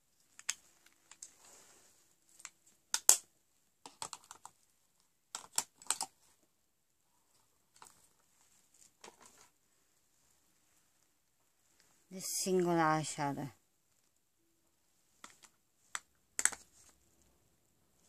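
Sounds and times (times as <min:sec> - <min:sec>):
clicks and taps of packaging: 0:02.4 - 0:03.2, 0:03.8 - 0:04.6, 0:05.3 - 0:06.1, 0:15.2 - 0:16.9.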